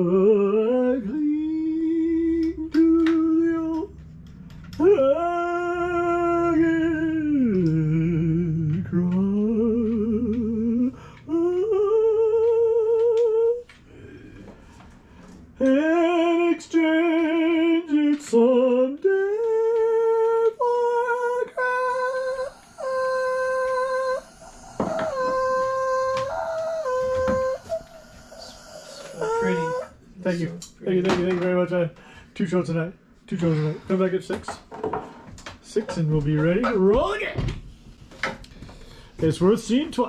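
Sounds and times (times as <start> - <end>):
person humming: 0.0 - 4.0, 4.7 - 14.5, 15.6 - 30.0.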